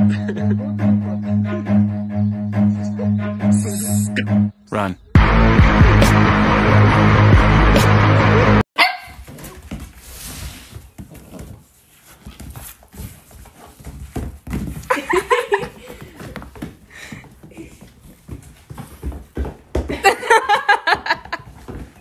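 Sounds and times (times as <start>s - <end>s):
loud music: 5.1s - 8.6s
puppy barking and yapping: 8.8s - 9.4s
puppy scuffling on rug: 9.2s - 19.7s.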